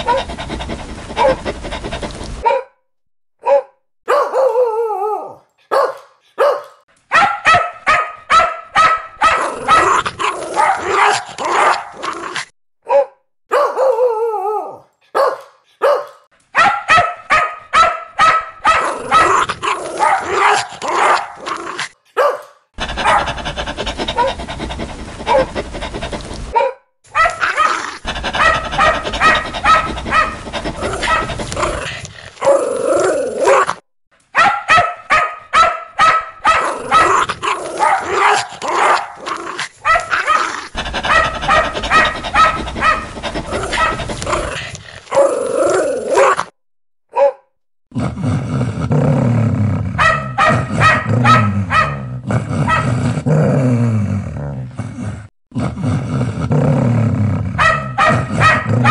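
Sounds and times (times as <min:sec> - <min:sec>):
dogs barking: 0:03.4 - 0:04.6, 0:05.6 - 0:12.1, 0:12.9 - 0:14.0, 0:15.1 - 0:21.6, 0:22.2 - 0:32.6, 0:34.4 - 0:45.3, 0:50.0 - 0:52.0, 0:52.6 - 0:52.9, 0:57.6 - 0:58.9.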